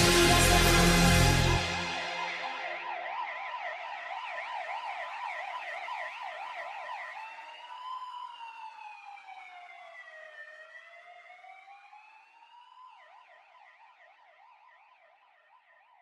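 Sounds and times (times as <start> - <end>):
siren yelping and wailing: 0.0 - 8.4.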